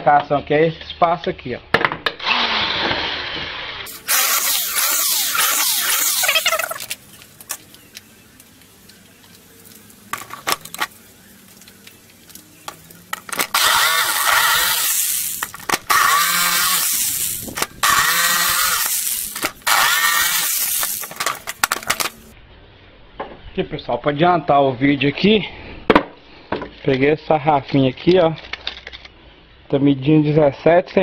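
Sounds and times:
electric drill boring plywood: 0:02.2 - 0:07.0, 0:13.4 - 0:22.2
jigsaw cutting plywood: 0:02.2 - 0:07.0, 0:13.4 - 0:22.2.

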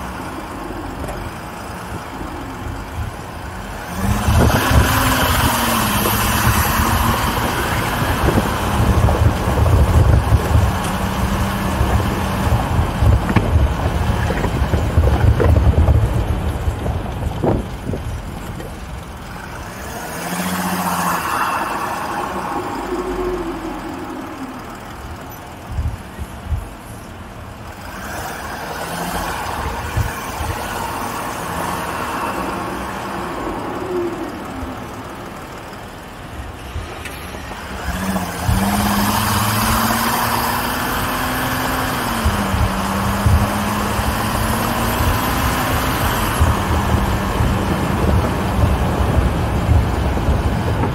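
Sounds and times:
off-road vehicle engine revving: 0:02.8 - 0:50.9
rumbling and knocks from bumps: 0:04.3 - 0:19.3, 0:42.2 - 0:44.1, 0:44.7 - 0:50.9.

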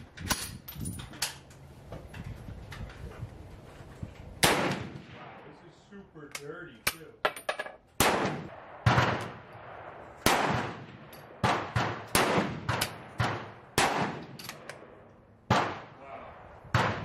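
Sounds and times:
rifle gunshots: 0:04.4 - 0:05.8, 0:08.0 - 0:16.0, 0:16.7 - 0:17.0.

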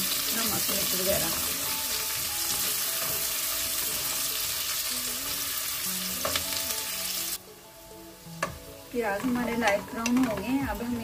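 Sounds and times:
onions sizzling in oil: 0:00.0 - 0:11.0.

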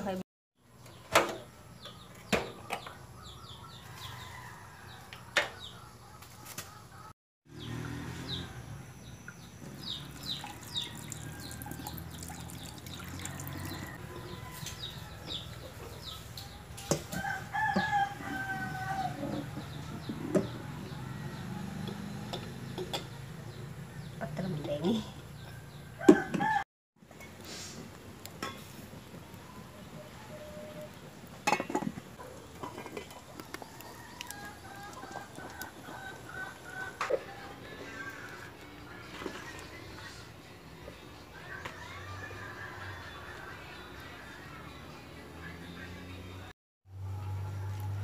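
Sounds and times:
rooster crowing: 0:10.8 - 0:12.0, 0:13.1 - 0:15.4, 0:17.1 - 0:22.3, 0:25.6 - 0:26.6, 0:33.6 - 0:38.4
chickens clucking: 0:31.5 - 0:38.4.

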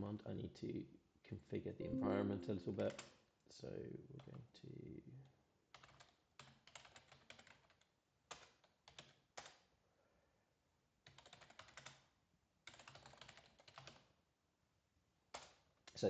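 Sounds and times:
typing on a keyboard: 0:05.7 - 0:09.7, 0:11.0 - 0:14.1, 0:15.3 - 0:16.0.

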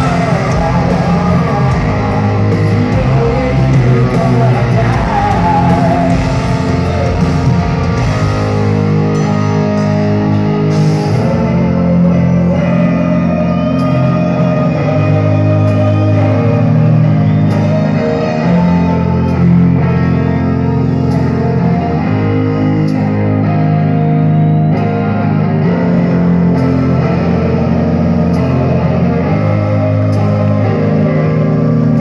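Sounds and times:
person singing: 0:00.0 - 0:08.2, 0:11.1 - 0:19.7
bass guitar: 0:00.0 - 0:32.0
distorted electric guitars: 0:00.0 - 0:32.0
drums: 0:00.0 - 0:32.0.

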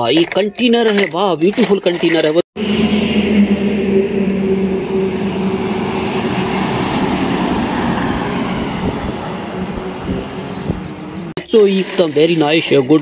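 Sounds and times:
tyre and road noise: 0:00.0 - 0:11.4
truck diesel engine humming: 0:02.6 - 0:11.3.

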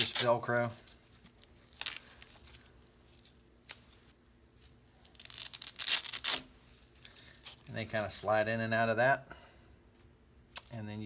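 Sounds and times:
velcro strap ripping apart: 0:00.0 - 0:07.7, 0:10.5 - 0:10.8.

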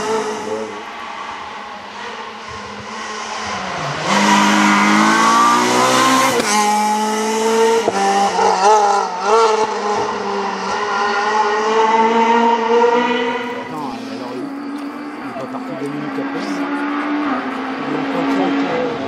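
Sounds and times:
rally car engine passing: 0:00.0 - 0:19.0.

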